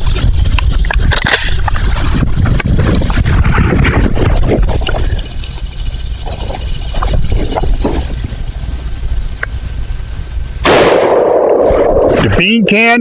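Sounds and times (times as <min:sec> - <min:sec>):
shotgun blast: 0:10.6 - 0:11.9.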